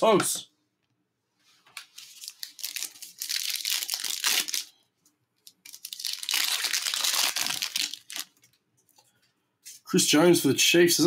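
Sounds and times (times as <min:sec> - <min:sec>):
foil wrapper tearing and crinkling: 0:01.8 - 0:04.7, 0:05.4 - 0:08.4.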